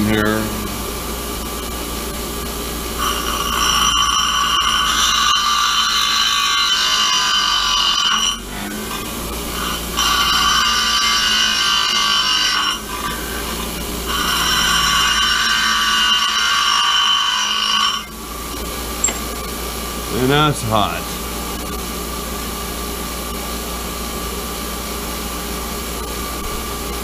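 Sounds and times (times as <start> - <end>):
grinder running with no load: 0.0 - 27.0
grinder wheel grinding steel: 2.9 - 21.0.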